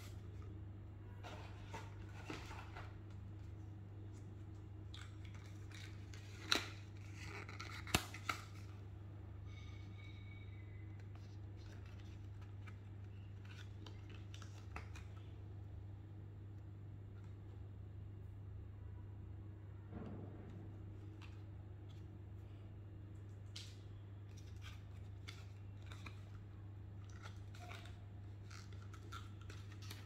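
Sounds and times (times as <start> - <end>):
packaging rustling and scraping: 0.0 - 8.8, 9.5 - 15.3, 24.3 - 30.0.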